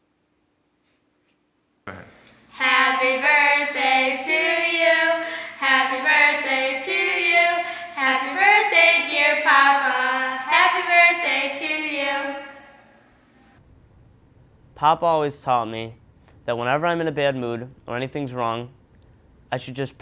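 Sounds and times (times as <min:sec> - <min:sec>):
girls singing together: 0:02.5 - 0:12.8.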